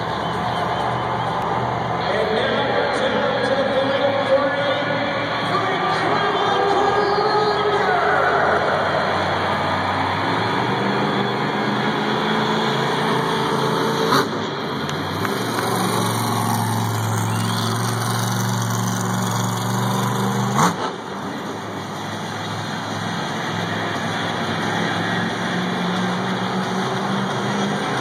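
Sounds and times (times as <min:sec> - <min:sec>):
monster truck engine running: 0:00.0 - 0:28.0.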